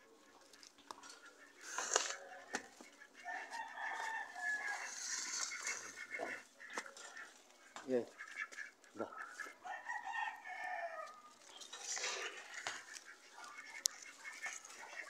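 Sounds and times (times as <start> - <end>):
rooster crowing: 3.2 - 5.5, 9.6 - 11.3.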